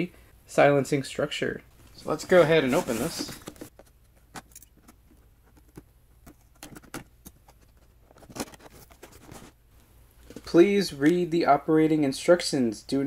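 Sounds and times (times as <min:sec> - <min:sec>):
cardboard rustling: 0:01.9 - 0:09.6.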